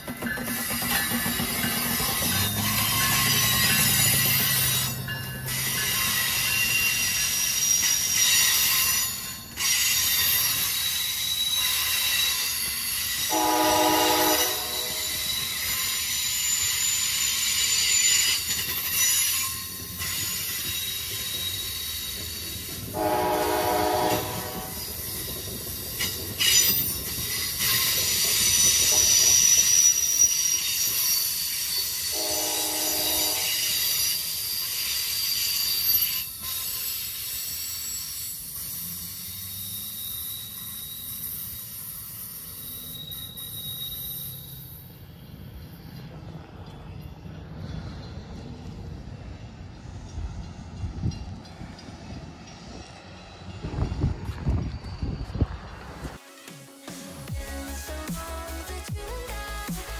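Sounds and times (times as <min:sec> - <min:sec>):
train wheels on rails: 0:00.0 - 0:59.9
wheel squeal: 0:00.2 - 0:22.9, 0:23.9 - 0:47.3, 0:52.5 - 0:56.2
train horn blasts: 0:13.3 - 0:15.2, 0:22.9 - 0:24.8, 0:32.1 - 0:33.8.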